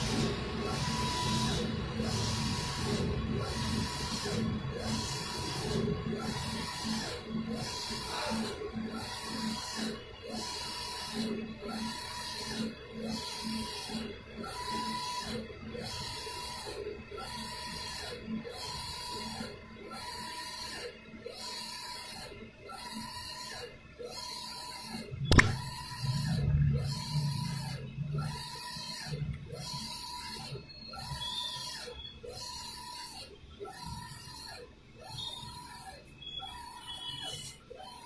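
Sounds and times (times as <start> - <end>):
sharp knock: 25.3 - 25.7.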